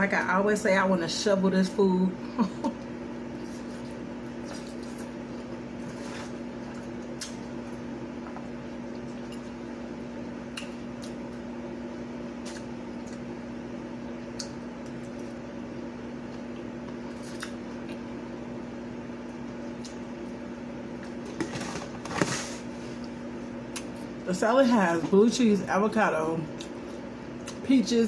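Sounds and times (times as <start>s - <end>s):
electrical hum: 0.0s - 28.0s
plastic container rustle and clatter: 21.3s - 22.6s.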